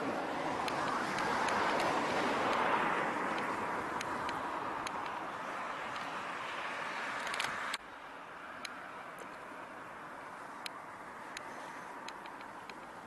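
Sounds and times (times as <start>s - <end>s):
passing car road noise: 0.0s - 13.0s
faint clicks: 3.3s - 5.2s, 7.2s - 7.8s, 10.6s - 13.0s.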